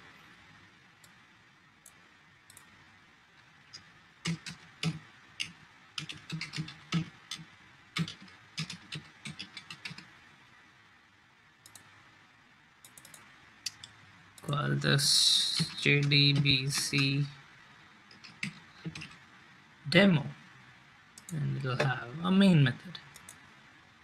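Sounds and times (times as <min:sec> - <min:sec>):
typing on computer keyboard: 0:04.2 - 0:10.1, 0:12.9 - 0:13.8, 0:18.1 - 0:19.2.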